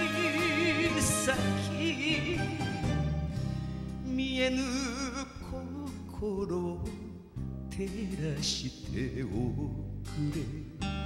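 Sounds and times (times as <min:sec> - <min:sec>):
band accompaniment: 0:00.0 - 0:04.0
person singing with vibrato: 0:00.0 - 0:11.0.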